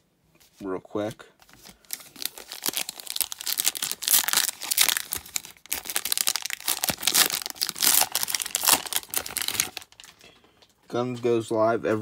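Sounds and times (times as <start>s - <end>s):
foil wrapper tearing and crinkling: 1.6s - 10.2s.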